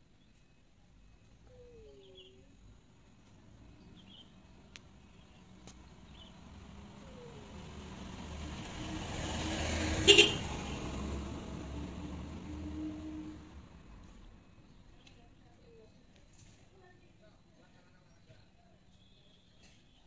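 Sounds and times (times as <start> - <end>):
road vehicle passing by: 3.3 - 14.9.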